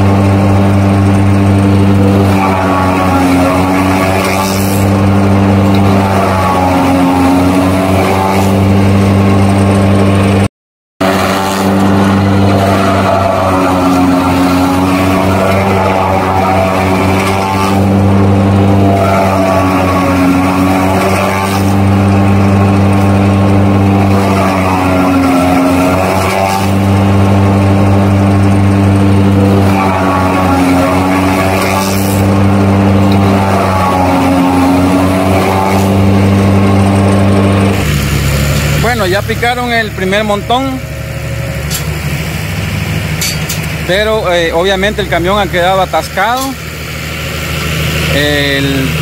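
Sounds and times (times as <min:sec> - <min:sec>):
heavy diesel engine running: 0:00.0 - 0:49.0.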